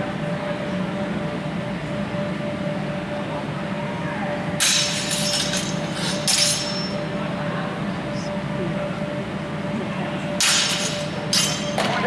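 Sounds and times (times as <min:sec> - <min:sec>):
steady background hum: 0:00.0 - 0:12.0
sword blades clashing: 0:04.6 - 0:07.0, 0:10.4 - 0:12.0.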